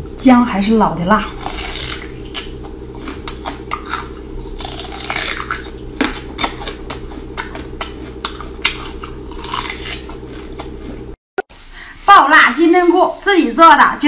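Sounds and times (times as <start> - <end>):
low hum: 0.0 - 12.0
crunching bites of raw ginger: 1.4 - 11.1.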